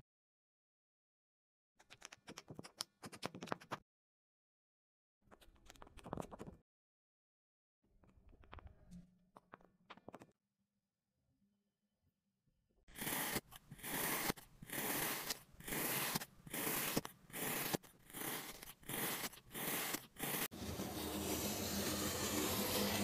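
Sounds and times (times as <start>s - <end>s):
knife slicing kinetic sand: 12.9s - 23.0s
tool scraping kinetic sand: 12.9s - 23.0s.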